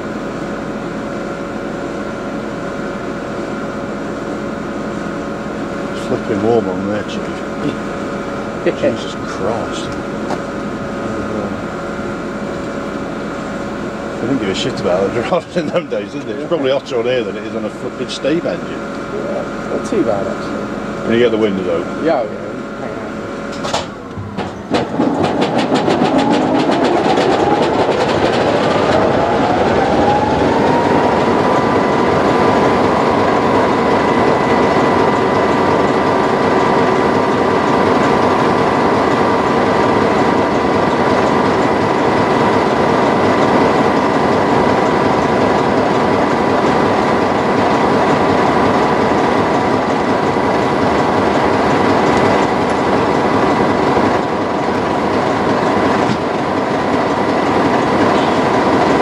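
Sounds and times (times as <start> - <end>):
diesel locomotive engine running: 0.0 - 59.0
rising whine: 7.1 - 59.0.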